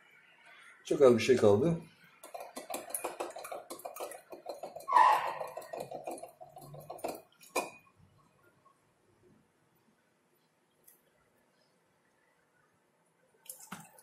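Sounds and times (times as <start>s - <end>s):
glass clicking and scraping: 2.2s - 7.9s
liquid sloshing in glass jar: 2.2s - 7.9s.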